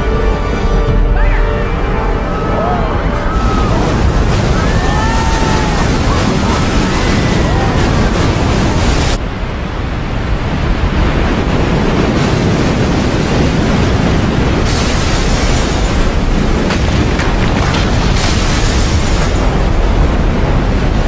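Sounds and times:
people screaming and shouting: 1.1s - 9.1s
roar of crashing water: 2.0s - 21.0s.

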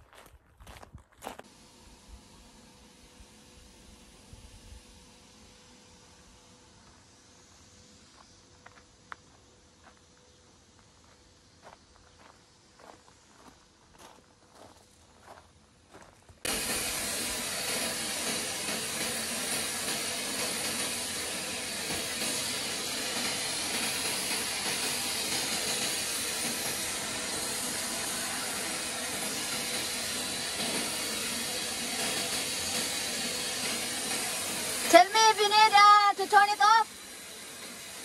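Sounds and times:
paint sprayer hissing: 1.4s - 10.1s, 16.4s - 38.0s.

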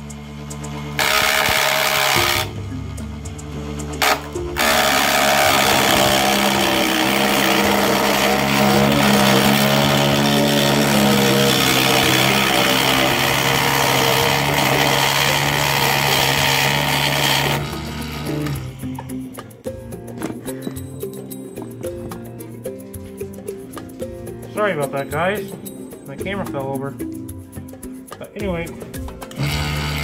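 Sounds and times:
wood shaving hiss: 0.0s - 2.6s, 3.4s - 19.0s
lathe motor whir: 0.0s - 19.0s, 29.3s - 30.0s.

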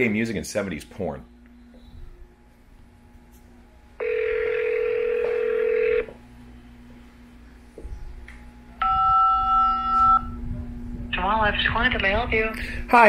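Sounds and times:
telephone ringing tone: 4.0s - 6.1s, 8.8s - 10.4s
two-pitch telephone tone: 4.0s - 6.1s, 8.8s - 10.4s.

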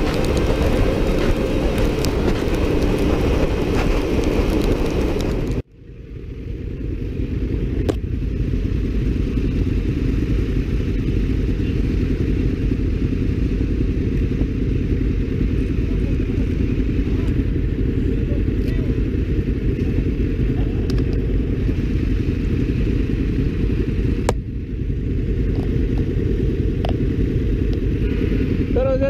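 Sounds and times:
wind and wet road spray: 0.0s - 5.6s
motorcycle engine idling: 0.0s - 29.0s.

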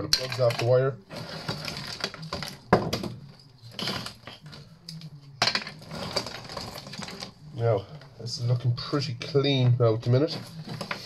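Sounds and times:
plugs and wire clattering: 0.0s - 7.4s
plastic wire rustling: 0.0s - 7.6s, 10.0s - 11.0s.

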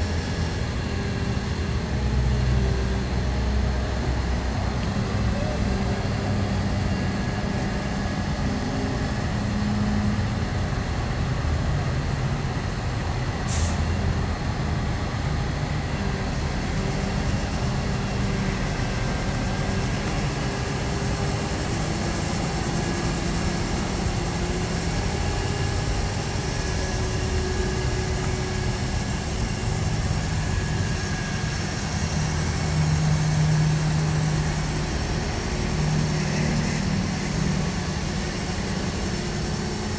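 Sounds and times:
truck diesel engine running: 0.0s - 39.9s.

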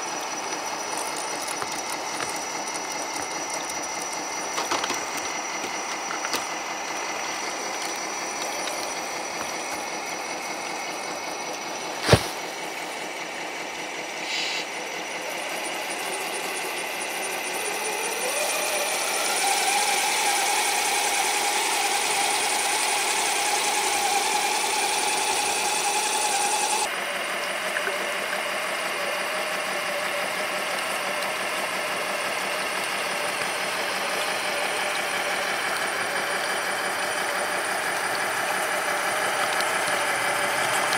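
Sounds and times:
electric motor whining: 0.0s - 13.0s, 13.6s - 40.9s.

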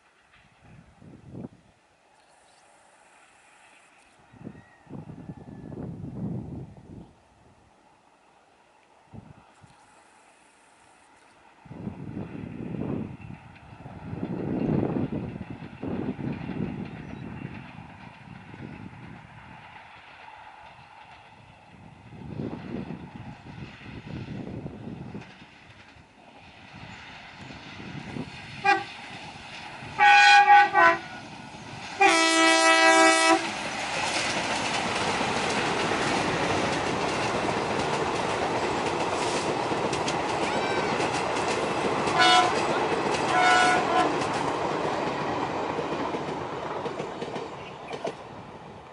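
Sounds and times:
locomotive horn: 28.6s - 28.9s, 30.0s - 31.2s, 32.0s - 33.5s, 42.1s - 44.2s
train clattering over rail joints: 31.3s - 48.4s.

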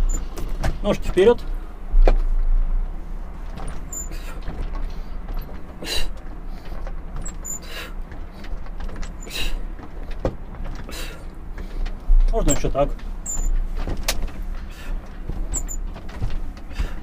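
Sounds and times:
steady low hum: 0.0s - 17.0s
man breathing out sharply: 10.9s - 11.8s.

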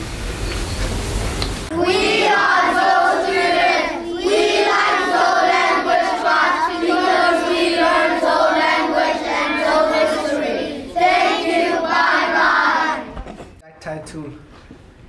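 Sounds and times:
children singing: 1.7s - 13.3s.

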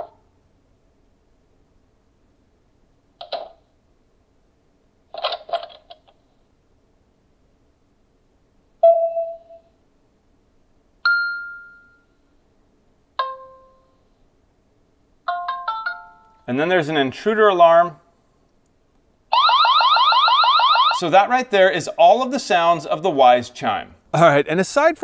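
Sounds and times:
doorbell chime notes: 11.1s - 12.1s.

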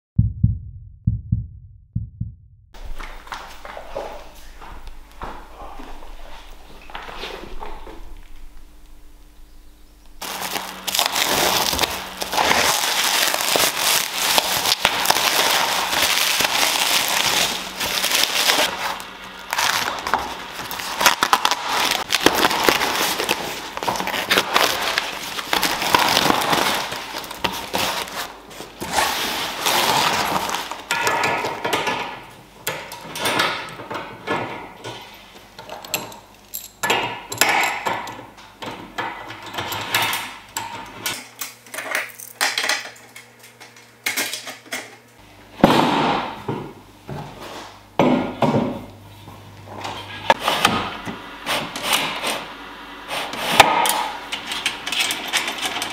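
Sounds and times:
plastic wrap and cardboard tearing: 10.2s - 30.9s.

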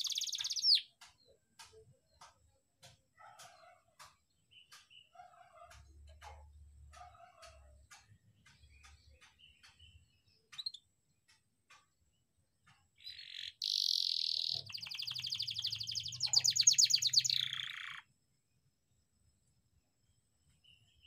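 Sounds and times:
canary singing: 0.0s - 10.9s, 13.0s - 18.1s.

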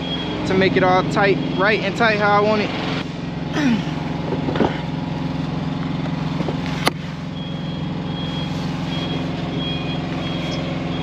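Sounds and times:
reversing alarm beeping: 0.0s - 3.0s, 6.9s - 11.0s
truck diesel engine idling: 0.0s - 11.0s.

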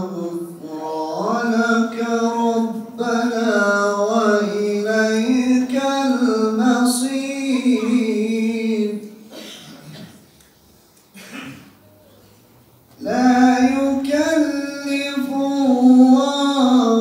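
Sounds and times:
man reciting in melodic chant: 0.0s - 9.4s, 13.0s - 17.0s.

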